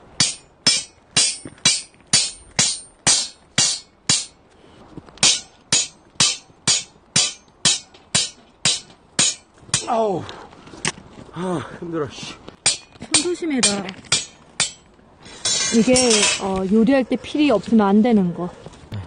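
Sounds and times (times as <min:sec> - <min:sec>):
hammer striking metal pole: 0:00.2 - 0:04.4, 0:05.2 - 0:09.9, 0:12.6 - 0:14.8.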